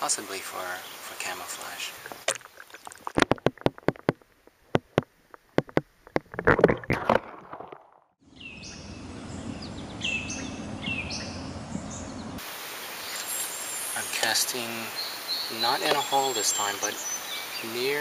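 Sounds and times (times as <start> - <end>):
burst of water noise: 2.0 - 3.7
sharp clicks and knocks underwater: 2.0 - 8.1.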